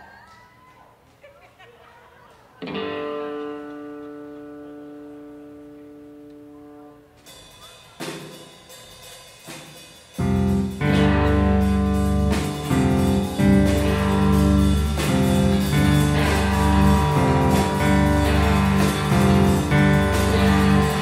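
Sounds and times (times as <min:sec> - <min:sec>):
rock band playing: 0:02.6 - 0:21.0
drum hits: 0:10.2 - 0:21.0.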